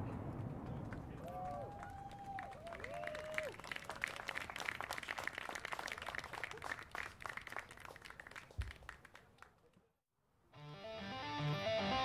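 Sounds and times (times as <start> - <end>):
audience clapping: 0.4 - 9.9.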